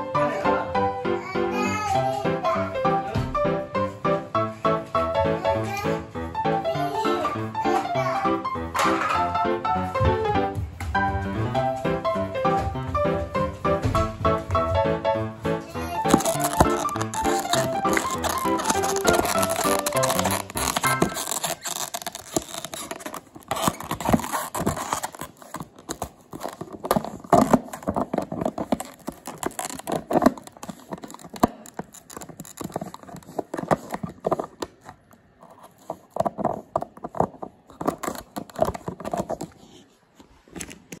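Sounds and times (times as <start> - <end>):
puppy chewing plastic bottle: 16.0 - 41.0.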